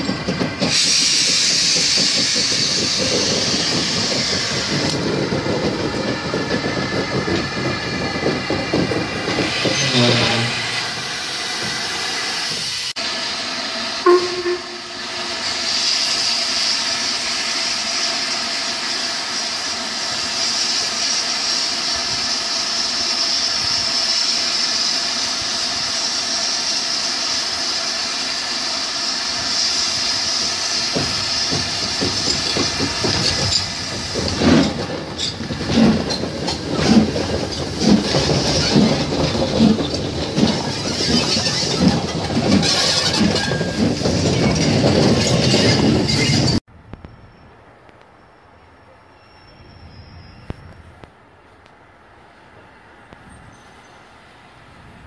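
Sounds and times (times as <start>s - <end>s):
steam locomotive rhythmic beat: 0.0s - 44.3s
steam hissing: 0.0s - 46.6s
short tone: 14.0s - 15.2s.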